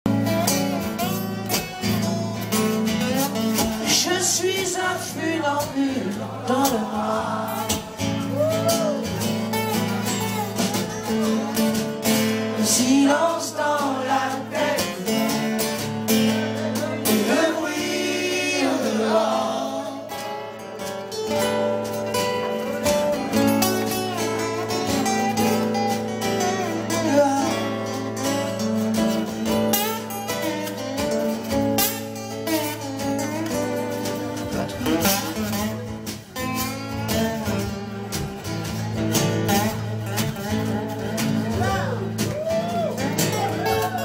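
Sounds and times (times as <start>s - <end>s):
acoustic guitars strummed: 0.1s - 44.0s
man singing: 2.7s - 9.0s, 11.1s - 20.4s, 26.5s - 29.7s, 33.5s - 36.0s.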